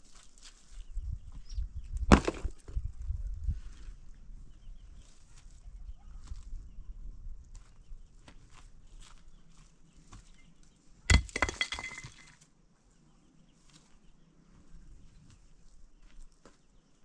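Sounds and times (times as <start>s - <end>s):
stones clattering against rock: 2.1s - 2.7s, 11.1s - 12.4s
ticks of small stones: 11.1s - 12.4s.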